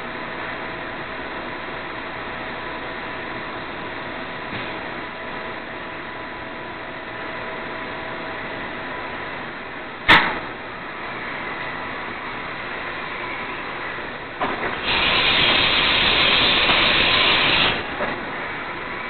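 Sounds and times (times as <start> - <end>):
machining center whining: 0.0 - 19.0
loud hiss: 14.7 - 17.9.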